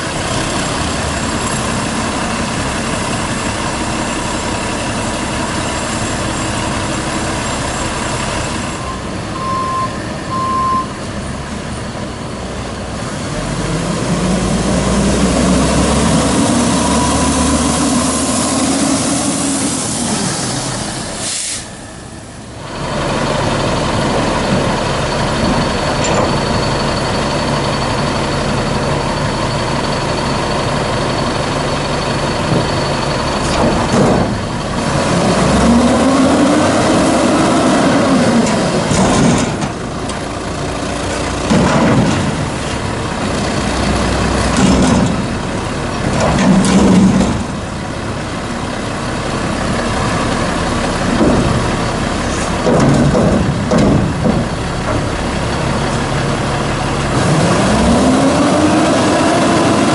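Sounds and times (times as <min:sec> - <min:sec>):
diesel truck engine idling: 0:00.0 - 0:59.9
short beeps: 0:08.8 - 0:11.0
truck engine revving: 0:12.5 - 0:59.9
air brakes hissing: 0:19.5 - 0:22.2.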